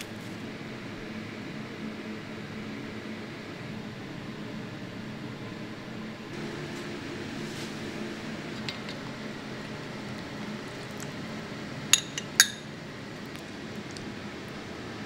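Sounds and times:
low background hum: 0.0 - 15.0
tableware clinking: 12.0 - 12.7.

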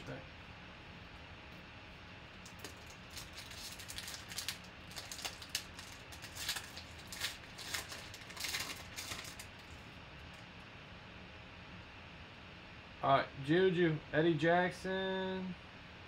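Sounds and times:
card pack wrapper crinkling and tearing: 2.4 - 9.8.

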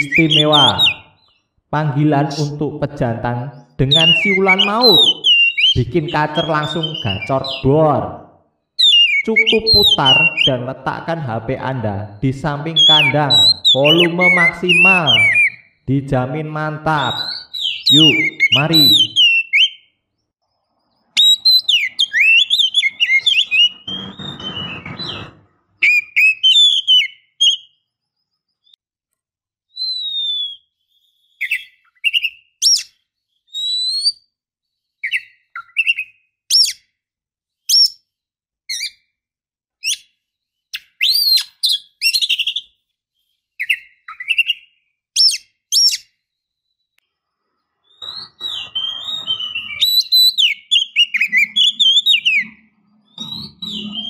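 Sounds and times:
bird whistled calls: 0.0 - 1.4, 3.9 - 7.7, 8.8 - 10.6, 12.7 - 15.8, 17.0 - 19.9, 21.1 - 27.8, 29.7 - 34.2, 35.0 - 36.8, 40.8 - 42.7, 43.6 - 46.1, 47.8 - 54.0
harsh noise: 22.7 - 25.8.

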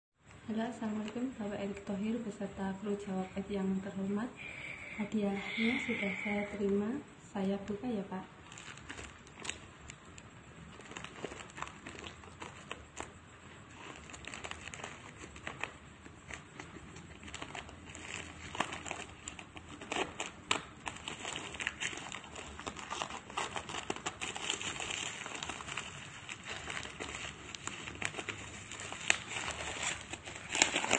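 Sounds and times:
plastic wrapping crinkling: 7.6 - 30.9.

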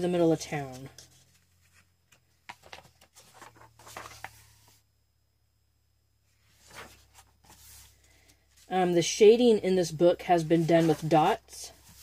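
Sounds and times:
paper pages rustling: 0.4 - 4.8, 6.4 - 8.7, 10.4 - 12.0.

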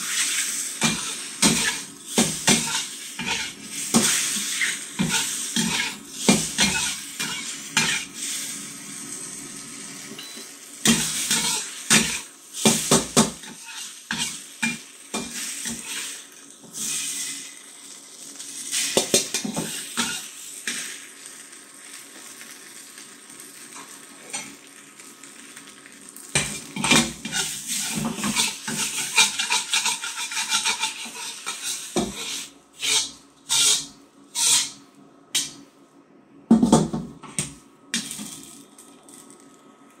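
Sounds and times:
spatula scraping a steel wok: 0.0 - 8.4, 10.8 - 17.3, 18.8 - 20.9, 26.4 - 34.8
faint sizzle: 0.0 - 36.5, 37.2 - 40.0.

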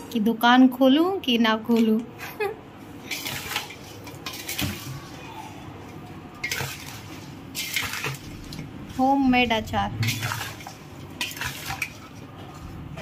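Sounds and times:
spatula stirring in a metal bowl: 2.9 - 13.0.

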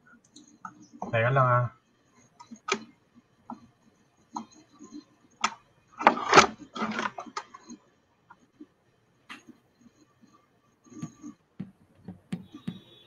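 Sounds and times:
audio equipment being handled: 5.4 - 7.8.

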